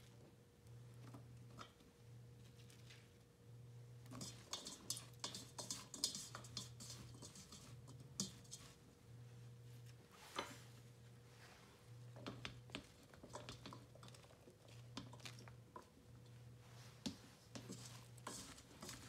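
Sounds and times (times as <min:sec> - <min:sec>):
vegetable pieces pattering in metal pot: 0:04.0 - 0:08.9, 0:12.1 - 0:19.0.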